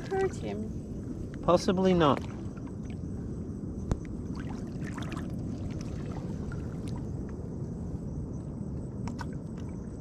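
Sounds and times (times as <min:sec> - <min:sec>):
seawater sloshing around legs: 0:04.2 - 0:07.2
small splashes and clicks: 0:09.0 - 0:09.7.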